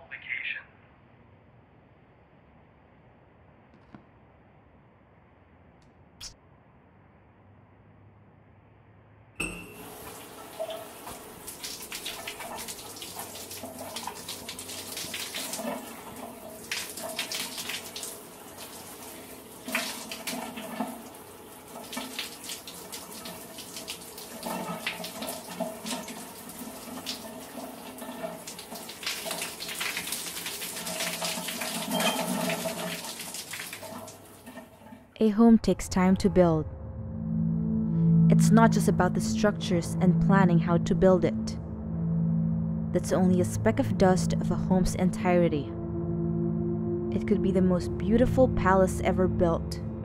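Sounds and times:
shower water spraying: 9.8s - 34.9s
water splashing in tub: 9.8s - 35.1s.

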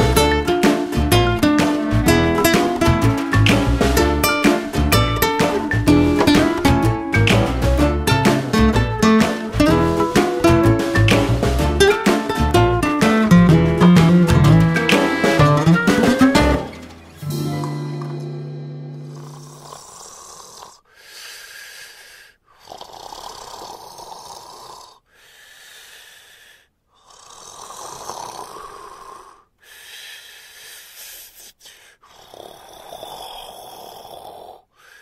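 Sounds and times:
dog snoring: 19.0s - 20.9s, 22.6s - 25.0s, 27.0s - 29.5s, 32.1s - 34.7s.

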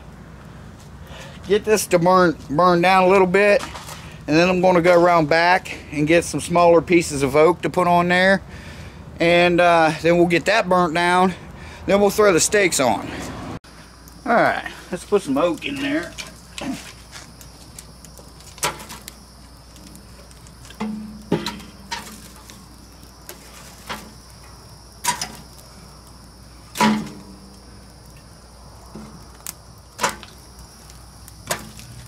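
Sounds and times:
logs knocking on wood and metal: 18.2s - 19.2s, 19.8s - 22.7s, 23.3s - 25.6s, 26.7s - 27.6s, 28.9s - 30.4s, 31.4s - 32.0s.

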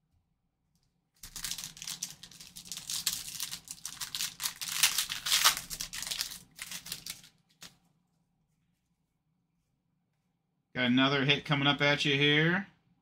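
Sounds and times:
foil wrapper crinkling and tearing: 1.2s - 7.7s.

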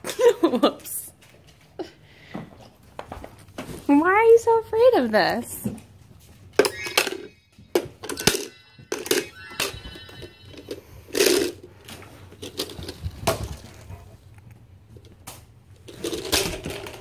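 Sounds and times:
bell-like jingling: 6.6s - 11.2s.

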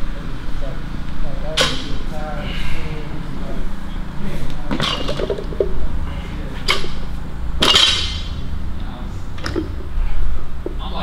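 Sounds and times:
metal gym weights clanking: 4.7s - 5.8s, 6.6s - 8.4s.

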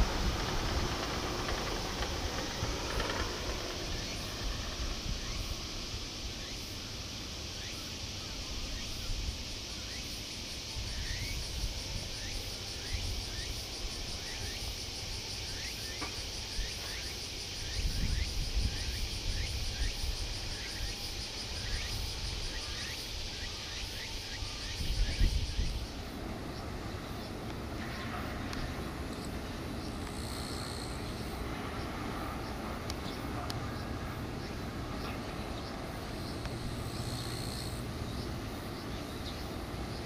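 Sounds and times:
low rumble: 0.0s - 5.7s
insects buzzing chorus: 0.0s - 40.0s.

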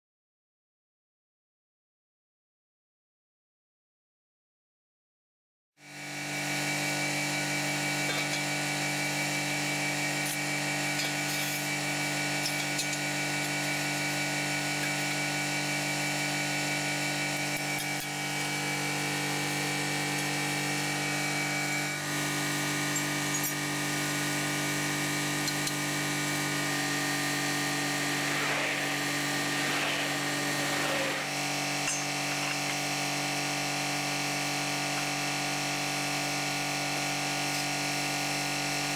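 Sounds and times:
high machine whine: 5.8s - 38.9s
boring machine hum: 5.9s - 37.2s.

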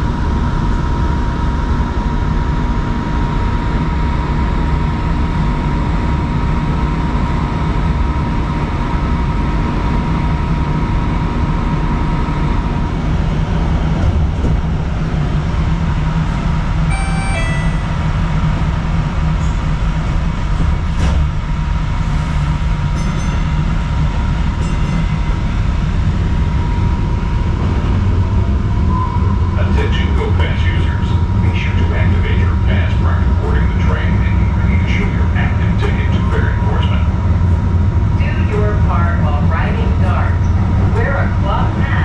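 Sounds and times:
light rail car rumbling: 0.0s - 42.0s
thin high tone: 16.9s - 18.4s.

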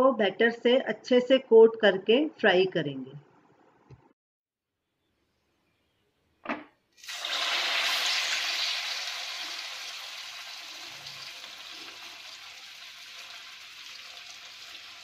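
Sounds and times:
oil sizzling loudly: 7.0s - 15.0s.

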